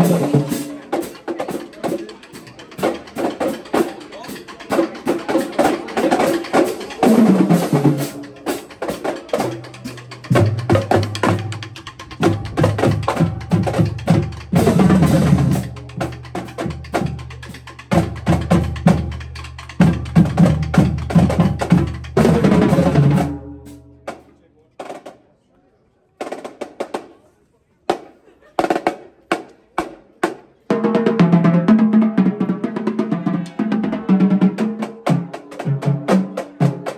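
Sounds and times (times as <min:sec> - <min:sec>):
snare and tenor drum strokes: 0:00.0 - 0:25.2.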